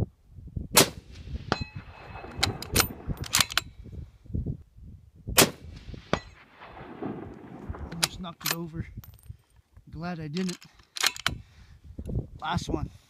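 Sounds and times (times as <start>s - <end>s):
rifle shots: 0.8s - 3.6s, 5.4s - 8.4s.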